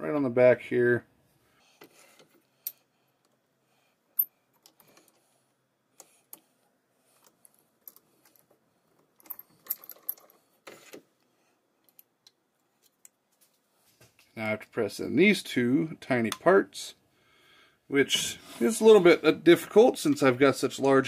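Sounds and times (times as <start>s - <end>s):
short rustling scrape: 18.2s - 19.0s.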